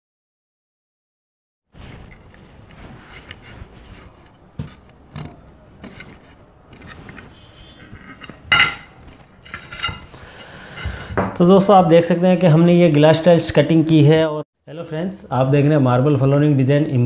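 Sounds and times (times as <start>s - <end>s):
glass cutter scraping and clicking: 3.2s - 10.9s
glass tile snapping: 8.2s - 10.1s.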